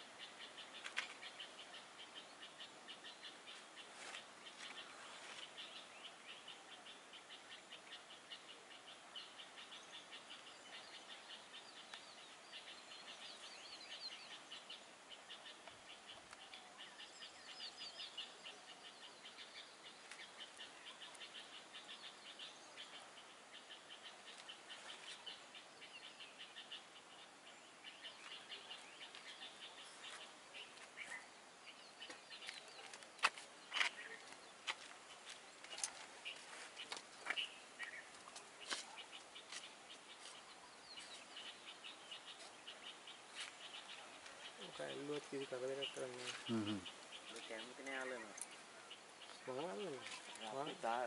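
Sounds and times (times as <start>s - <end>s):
birds chirping: 0.0s - 51.0s.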